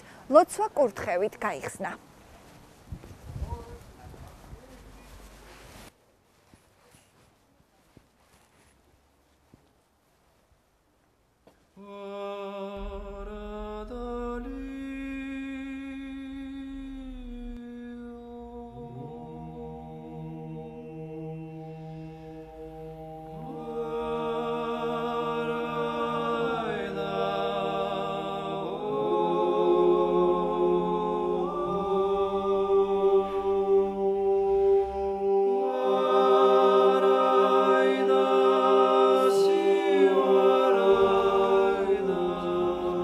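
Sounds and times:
voices chanting in harmony: 11.8s - 43.0s.

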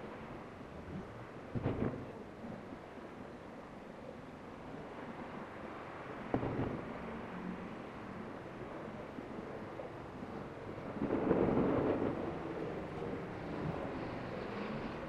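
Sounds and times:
wind on microphone: 0.0s - 3.4s, 4.7s - 15.0s
thunder: 1.5s - 2.3s, 6.3s - 7.5s, 10.7s - 15.0s.

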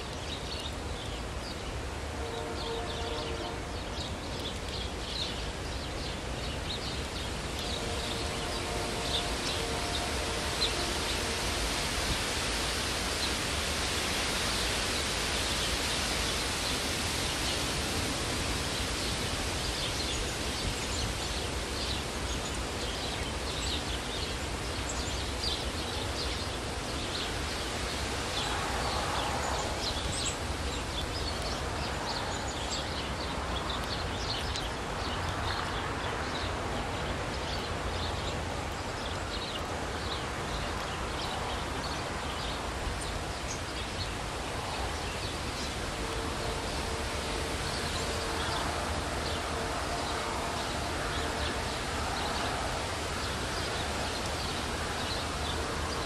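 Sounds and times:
wind rustling trees: 0.0s - 56.0s.

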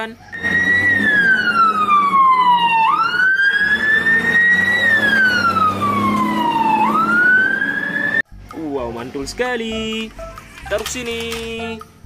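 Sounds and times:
fire engine siren wailing: 0.3s - 8.2s.

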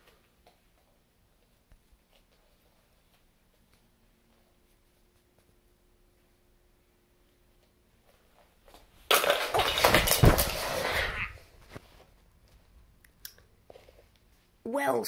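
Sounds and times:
scuffling and knocking: 9.2s - 12.1s.

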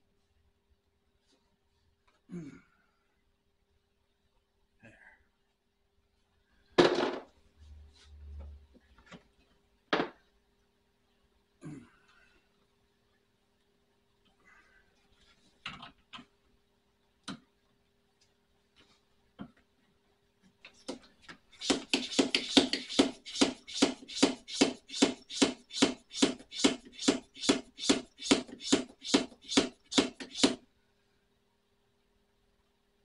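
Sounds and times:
hand pump strokes: 21.6s - 30.6s.

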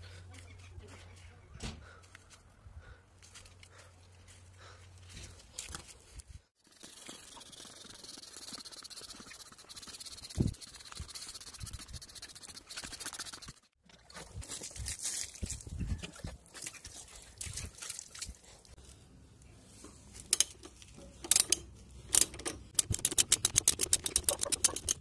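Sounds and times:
spray bottle spraying: 6.7s - 13.6s.

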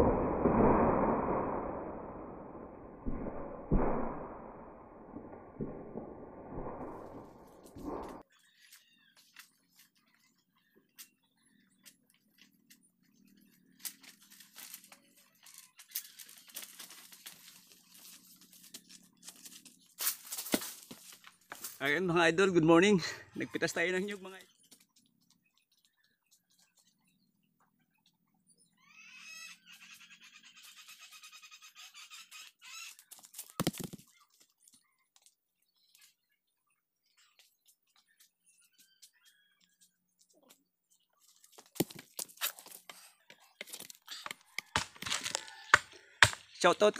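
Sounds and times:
dry leaves crackling and rustling: 13.8s - 21.8s.

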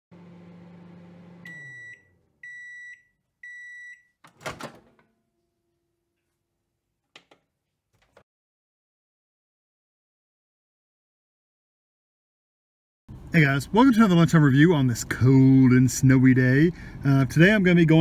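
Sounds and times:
microwave oven humming: 0.1s - 6.2s
microwave door popping open: 4.2s - 5.1s.

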